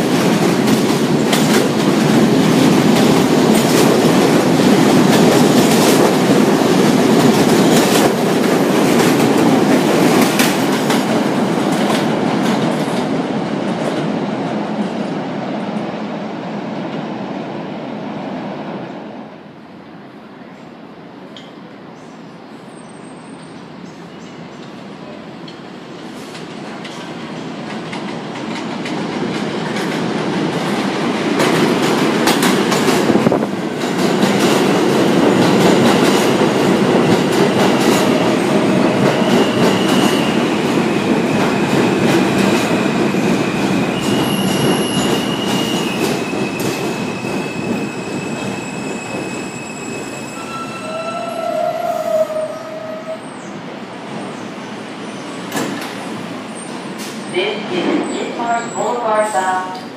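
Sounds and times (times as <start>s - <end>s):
train wheel rumble: 0.0s - 16.0s, 24.5s - 58.6s
high brake squeals: 22.7s - 23.7s, 44.0s - 53.5s
rail-joint clatter: 55.5s - 56.0s.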